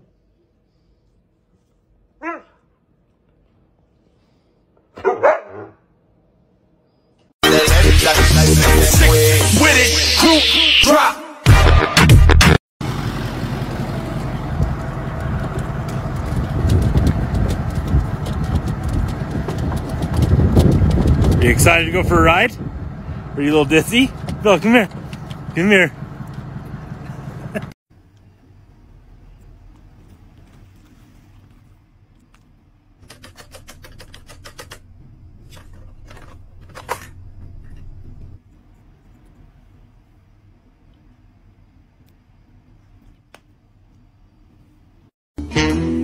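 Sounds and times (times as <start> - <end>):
truck engine and road noise: 12.4 - 46.0.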